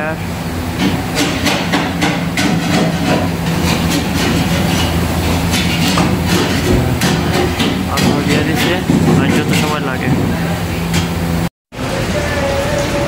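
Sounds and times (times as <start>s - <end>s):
ventilation machinery drone: 0.0s - 13.0s
metal trays and utensils clattering: 0.8s - 11.2s.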